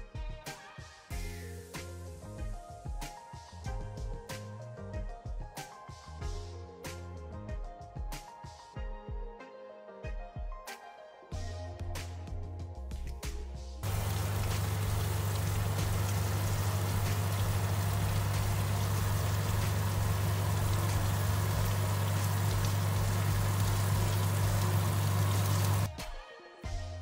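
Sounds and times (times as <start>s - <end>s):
chicken wings sizzling: 13.8s - 25.9s
oven fan humming: 13.8s - 25.9s.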